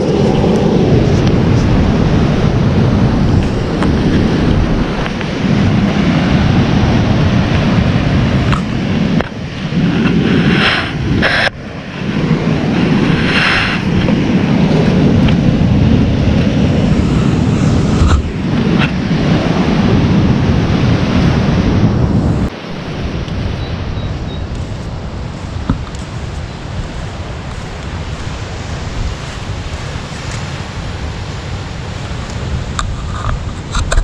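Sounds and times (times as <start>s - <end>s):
surf washing over rocks: 0.0s - 34.0s
wind buffeting microphone: 0.0s - 34.0s.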